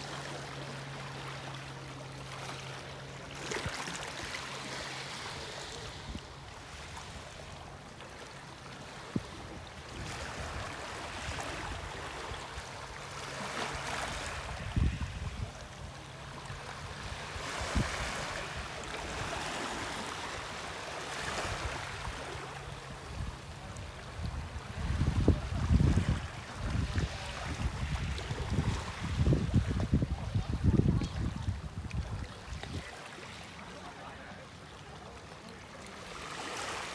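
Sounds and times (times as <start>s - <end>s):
waves lapping on pebbly shore: 0.0s - 31.3s, 32.0s - 36.9s
wind buffeting microphone: 14.4s - 15.9s, 23.2s - 32.9s.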